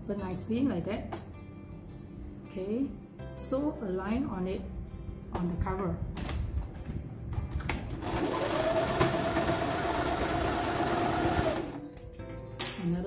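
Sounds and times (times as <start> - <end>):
sewing machine running: 8.0 - 11.8.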